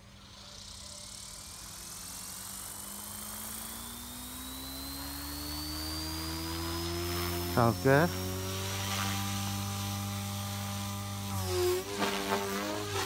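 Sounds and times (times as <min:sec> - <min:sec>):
rc helicopter motor whine: 0:00.0 - 0:13.0
rotor tone rising: 0:00.0 - 0:13.0.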